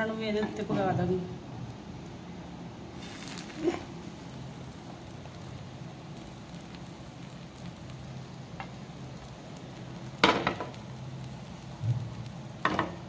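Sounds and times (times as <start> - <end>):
food sizzling on a griddle: 2.8 - 13.0.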